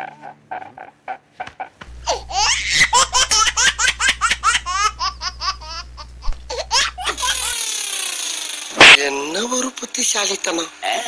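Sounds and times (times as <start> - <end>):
hysterical high-pitched laughter: 0.0 - 5.9
steady low hum: 0.0 - 11.0.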